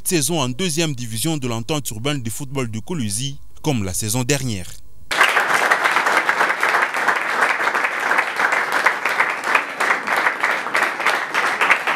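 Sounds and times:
crowd applauding: 5.1 - 11.9.

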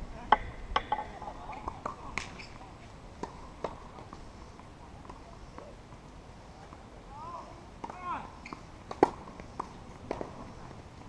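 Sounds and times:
tennis ball struck and bouncing: 0.3 - 1.2, 7.8 - 10.5.

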